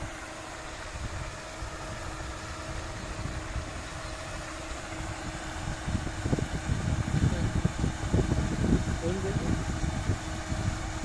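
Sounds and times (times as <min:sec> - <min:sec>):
faint steady hum: 0:00.0 - 0:11.0
pond aerator splashing water: 0:00.0 - 0:11.0
wind on microphone: 0:00.0 - 0:11.0.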